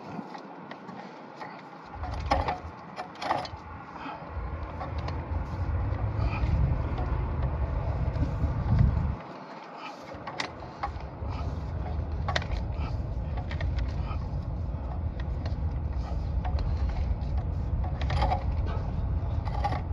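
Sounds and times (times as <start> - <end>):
cable reel clicks and rattles: 0.0 - 3.7, 4.5 - 19.9
low rumble: 3.6 - 9.2, 10.6 - 19.9.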